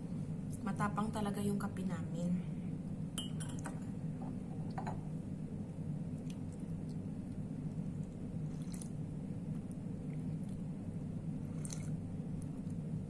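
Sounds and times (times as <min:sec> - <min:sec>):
low room hum: 0:00.0 - 0:13.0
coffee slurping: 0:08.4 - 0:09.0, 0:11.4 - 0:12.0.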